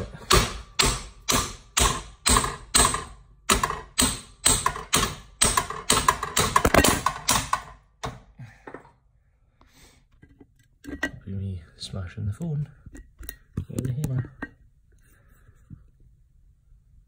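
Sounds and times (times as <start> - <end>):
hammer striking metal linkage: 0.3 - 7.7.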